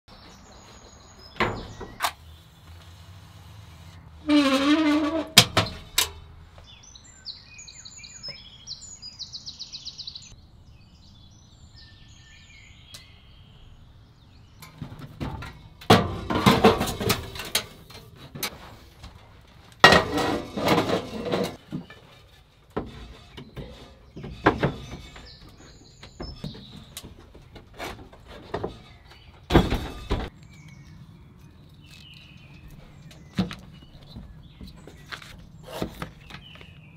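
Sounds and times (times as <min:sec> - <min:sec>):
small birds chirping: 0:00.1 - 0:04.2, 0:06.5 - 0:15.8, 0:21.6 - 0:36.9
wooden boards knocking and clattering: 0:01.4 - 0:02.0, 0:14.8 - 0:18.7, 0:19.8 - 0:30.3
creak: 0:04.2 - 0:05.4.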